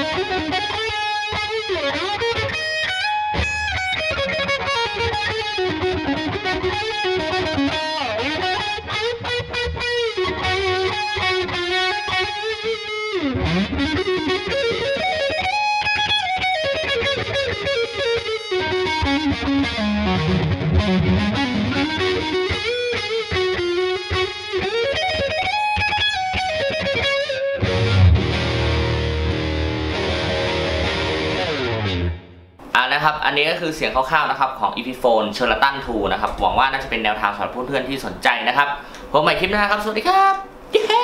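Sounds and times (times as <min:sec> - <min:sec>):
distorted electric guitar solo: 0:00.0 - 0:32.7.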